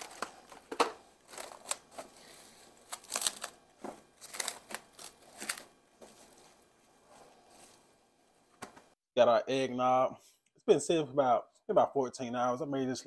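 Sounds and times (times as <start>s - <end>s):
plastic cling wrap crinkling: 0.0s - 7.8s.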